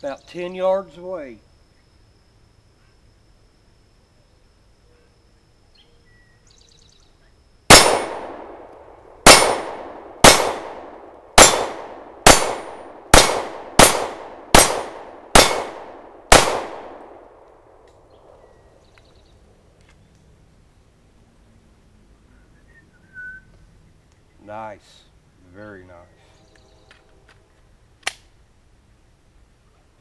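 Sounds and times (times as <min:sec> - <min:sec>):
pistol shots echoing: 0:07.7 - 0:17.5.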